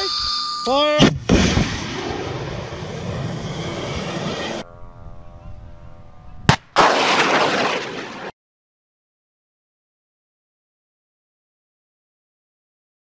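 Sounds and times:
sharp launch crack: 0:01.0 - 0:04.5, 0:06.5 - 0:08.3.

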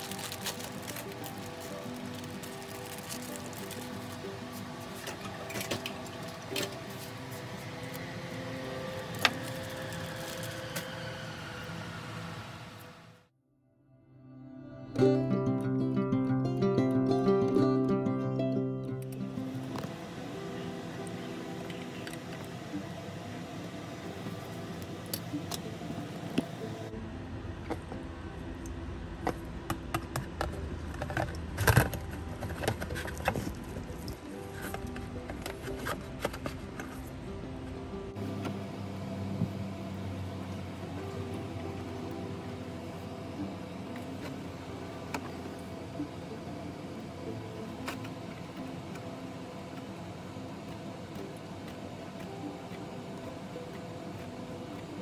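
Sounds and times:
soft background music: 0:00.0 - 0:12.4, 0:13.6 - 0:55.0
low steady hum: 0:00.0 - 0:55.0.

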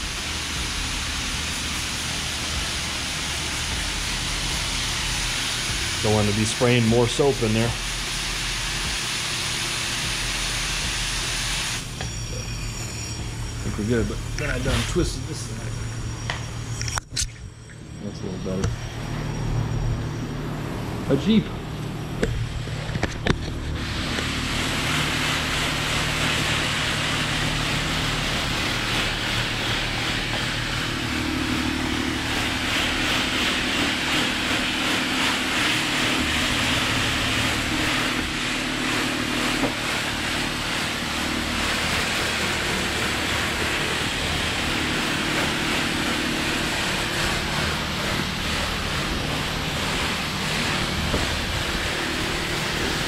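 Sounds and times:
spray wand hissing water: 0:00.0 - 0:16.8, 0:23.7 - 0:53.0
low hum: 0:11.8 - 0:24.7.

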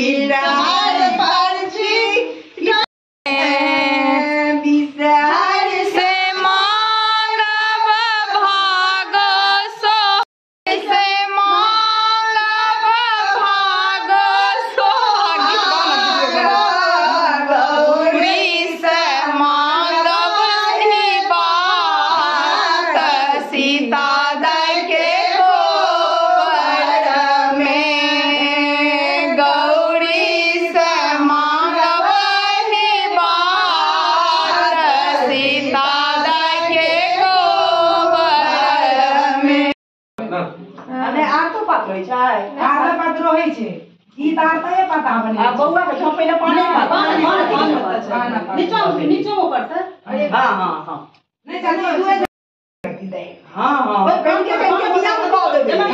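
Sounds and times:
women singing folk song: 0:00.0 - 0:39.8.

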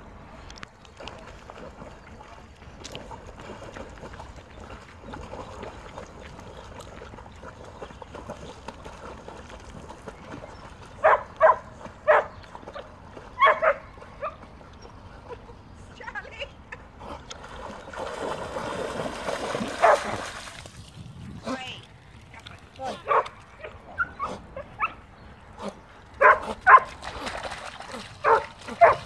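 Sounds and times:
dog barking: 0:11.0 - 0:12.3, 0:13.4 - 0:14.4, 0:19.8 - 0:20.1, 0:23.0 - 0:23.3, 0:26.2 - 0:26.9, 0:28.2 - 0:29.0.

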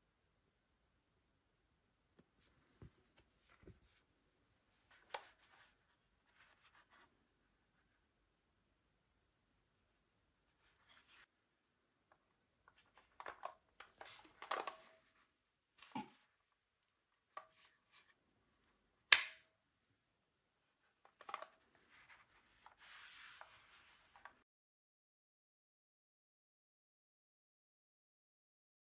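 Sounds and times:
loud sharp click: 0:19.1 - 0:19.4.

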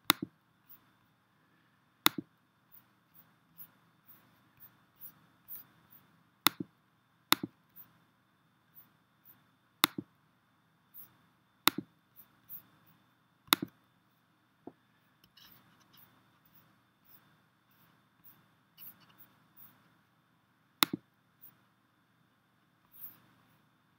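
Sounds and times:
computer mouse clicks: 0:00.0 - 0:00.8, 0:02.0 - 0:02.3, 0:06.4 - 0:06.7, 0:09.8 - 0:10.1, 0:11.7 - 0:11.9, 0:13.5 - 0:13.8, 0:20.8 - 0:21.6.

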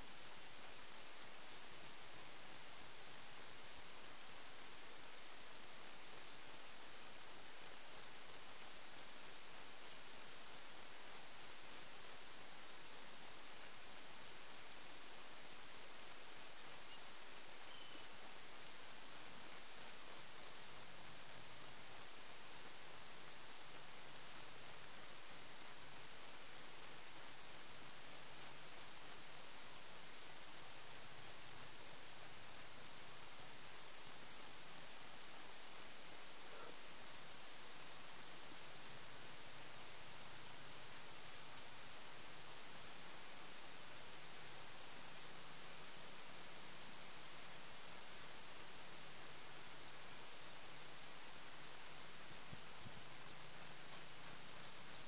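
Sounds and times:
high cricket chirping: 0:00.1 - 0:55.0
lower-pitched cricket chirping: 0:00.1 - 0:55.0.

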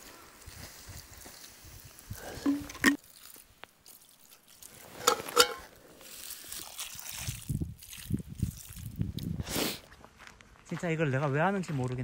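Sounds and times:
water pouring onto embers: 0:00.4 - 0:09.8.

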